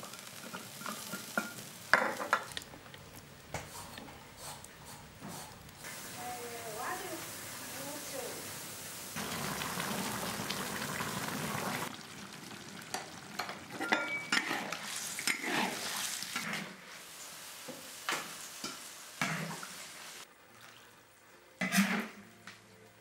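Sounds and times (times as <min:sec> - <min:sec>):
simmering hiss: 0:03.2 - 0:11.9, 0:15.9 - 0:20.3
metal ladle scraping wok: 0:13.8 - 0:16.8, 0:21.6 - 0:22.2.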